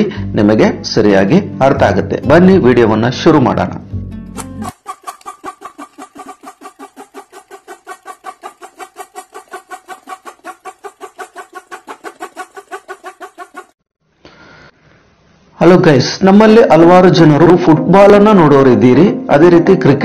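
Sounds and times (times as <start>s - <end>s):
rapid short pitched pulses: 4.4s - 13.8s.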